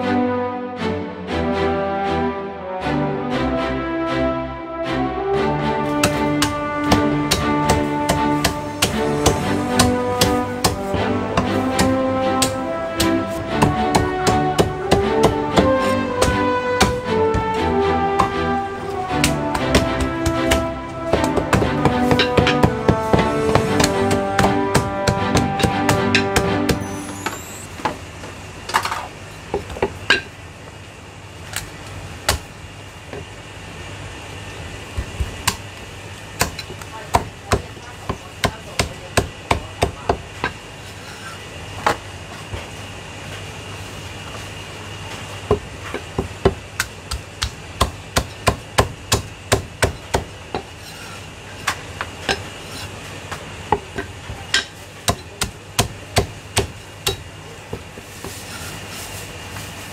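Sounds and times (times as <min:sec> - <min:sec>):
steady low hum: 0:00.1 - 0:59.9
cleaver chopping on wooden block: 0:06.0 - 0:17.6, 0:19.2 - 0:26.8, 0:46.2 - 0:50.7, 0:53.7 - 0:57.2.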